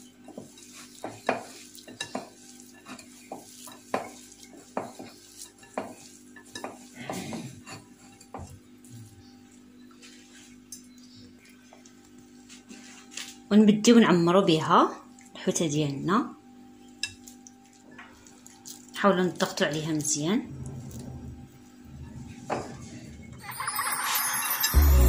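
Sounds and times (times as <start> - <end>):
hands mixing rice in plastic bowl: 0.0 - 8.6.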